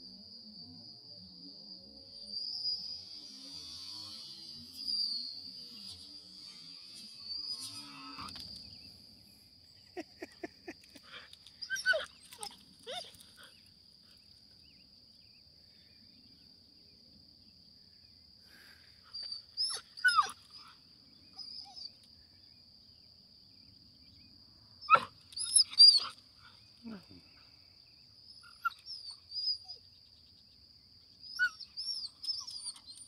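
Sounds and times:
dog whining: 0:11.6 - 0:13.6, 0:19.2 - 0:20.7, 0:21.4 - 0:22.0, 0:24.9 - 0:26.2, 0:28.4 - 0:29.8, 0:31.3 - 0:33.0.

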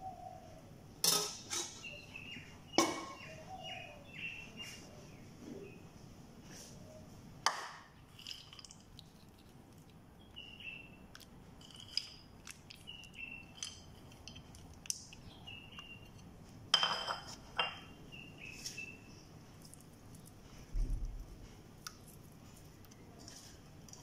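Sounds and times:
small birds chirping: 0:01.6 - 0:05.9, 0:08.4 - 0:16.4, 0:17.6 - 0:20.9.

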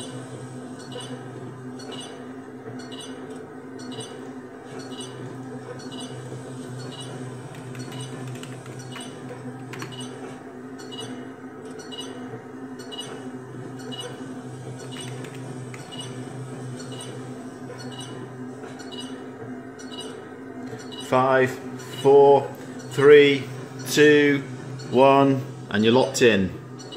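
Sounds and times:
steady low hum: 0:00.0 - 0:26.9.

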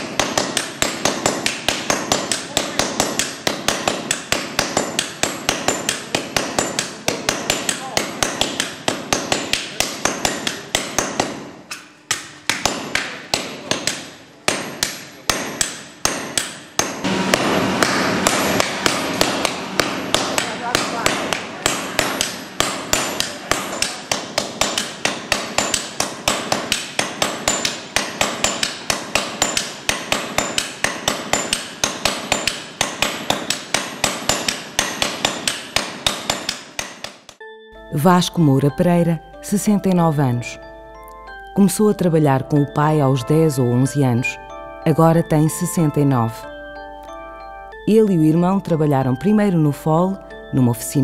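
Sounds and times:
sledgehammers striking iron on anvil: 0:00.0 - 0:37.4.

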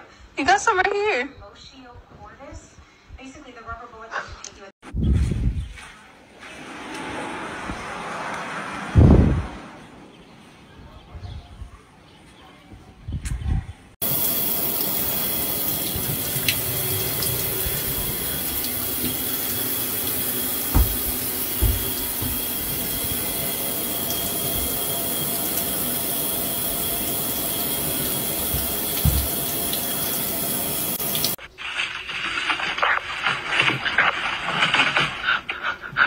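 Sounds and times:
shower water spraying into bathtub: 0:14.0 - 0:34.9
dull thumps: 0:20.6 - 0:23.0, 0:28.5 - 0:29.5.

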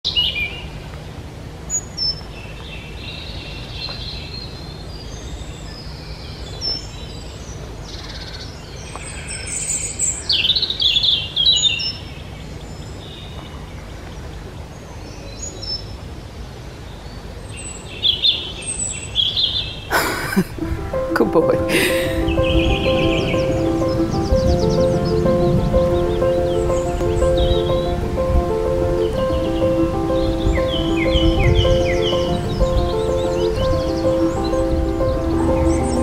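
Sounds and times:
songbirds chirping and trilling: 0:00.1 - 0:36.0
steady low rumble: 0:20.5 - 0:36.0.

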